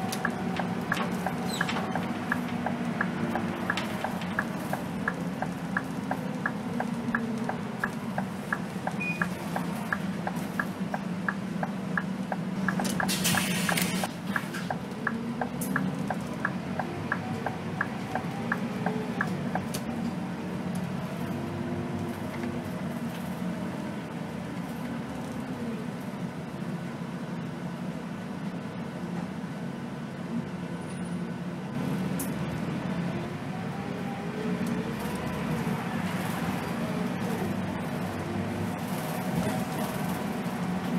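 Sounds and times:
turn signal ticking: 0.0s - 19.8s
bus diesel engine drone: 0.0s - 40.9s.

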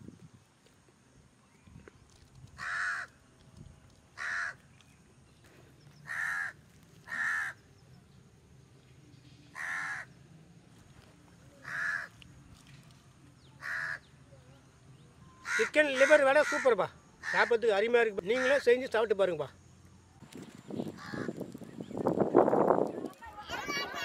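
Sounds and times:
crow cawing: 2.6s - 3.1s, 4.2s - 4.6s, 6.0s - 7.6s, 9.5s - 10.1s, 11.6s - 12.2s, 13.6s - 14.1s, 15.4s - 17.6s, 18.3s - 18.7s, 21.0s - 21.4s.

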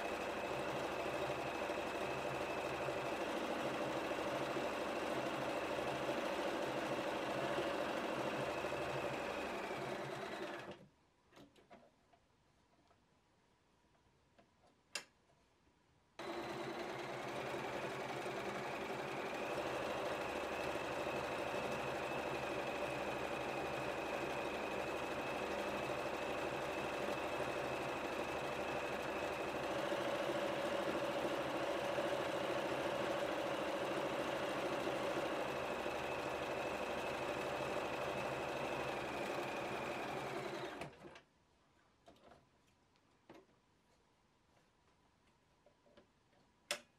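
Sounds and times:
sewing machine running: 0.0s - 10.8s, 16.2s - 41.1s.

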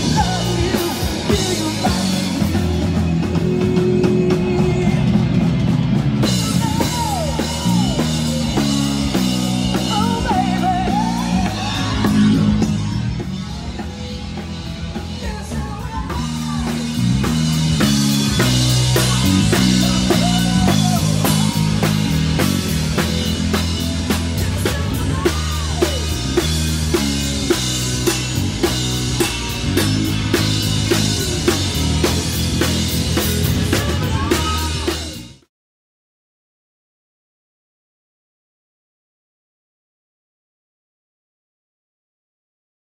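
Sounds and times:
person singing: 0.0s - 5.4s, 6.2s - 13.9s, 14.9s - 27.1s, 30.9s - 35.3s
drum kit beat: 0.0s - 35.5s
guitar: 0.0s - 35.5s.

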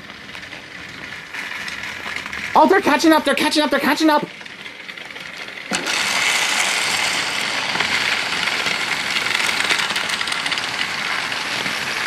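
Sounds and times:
toy trains whirring: 0.0s - 12.0s.

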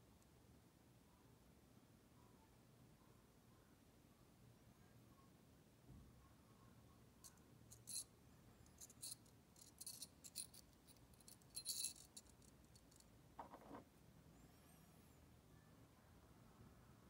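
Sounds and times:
fishing tackle clicking and rattling: 8.8s - 13.1s.

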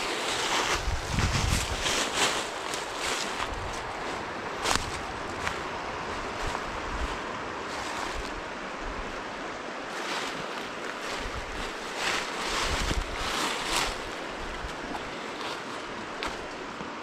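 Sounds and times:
wind buffeting microphone: 0.0s - 2.3s, 3.0s - 9.5s, 11.0s - 15.2s
river water rushing: 1.8s - 17.0s.

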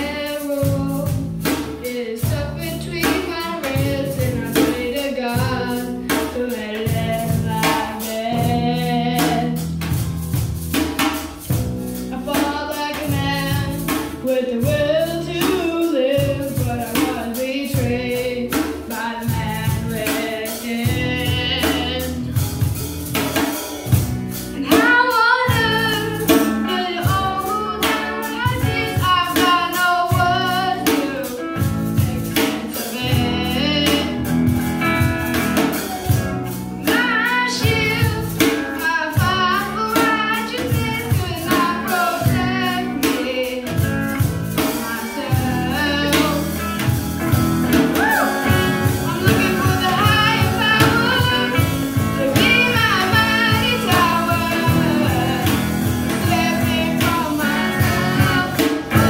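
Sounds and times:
electric bass: 0.0s - 59.0s
strummed acoustic guitars: 0.0s - 59.0s
steady beat: 31.6s - 37.0s, 46.2s - 59.0s
adults and children singing: 47.7s - 59.0s.

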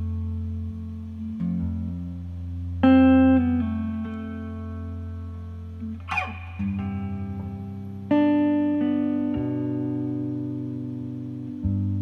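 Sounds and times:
plucked guitar chords: 0.0s - 12.0s
scraping sweep across guitar strings: 5.9s - 7.6s.

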